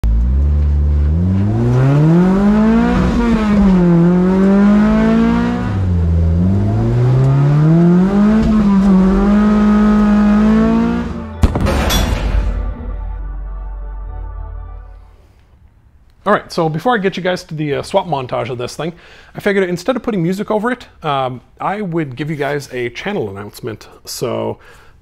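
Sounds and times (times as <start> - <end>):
car engine while driving: 0.0 - 11.4.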